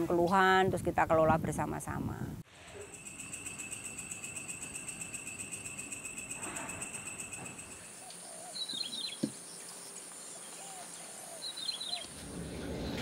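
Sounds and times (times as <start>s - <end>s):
high insect hum: 2.8s - 12.1s
insects trilling: 2.8s - 12.1s
bird chirps: 3.0s - 12.1s.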